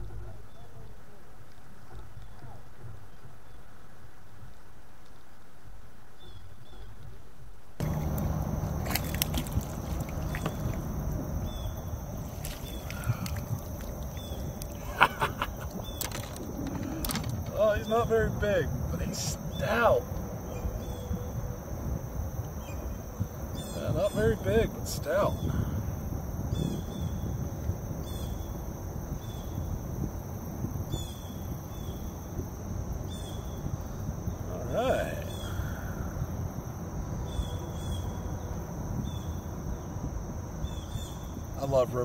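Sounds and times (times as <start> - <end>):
water sloshing and trickling: 7.8 - 21.6
low rumble: 7.8 - 22.2
high-pitched insect drone: 7.8 - 27.4.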